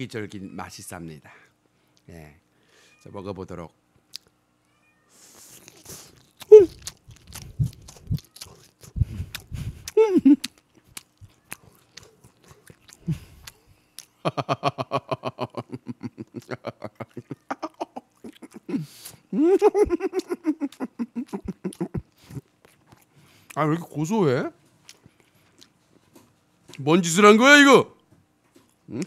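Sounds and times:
man chewing with mouth clicks: 0:04.1 - 0:04.4, 0:05.2 - 0:14.4, 0:16.1 - 0:24.0, 0:24.6 - 0:26.8
man humming with mouth full: 0:06.4 - 0:10.5, 0:13.0 - 0:13.8, 0:14.5 - 0:22.4.

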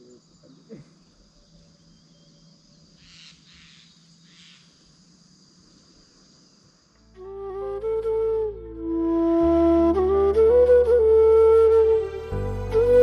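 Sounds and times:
insects buzzing: 0:00.0 - 0:07.6
flute melody: 0:07.2 - 0:13.0.

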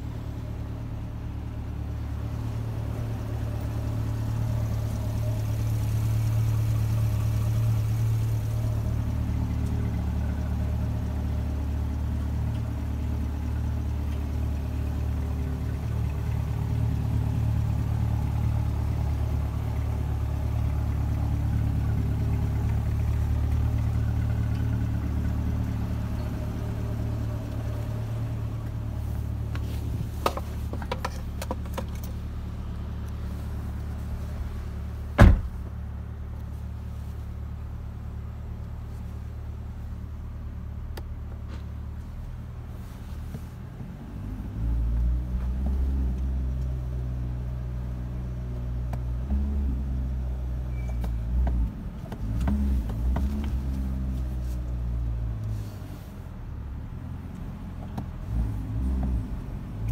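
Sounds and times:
car engine idling: 0:00.0 - 0:59.9
car door shutting: 0:35.2 - 0:35.7.

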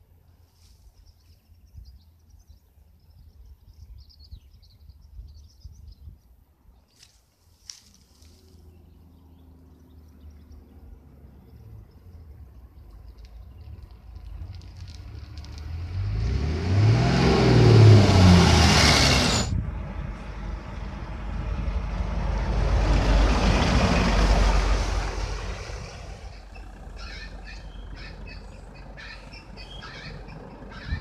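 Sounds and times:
coach engine driving past: 0:09.0 - 0:31.0
tyres rushing: 0:14.2 - 0:21.3.

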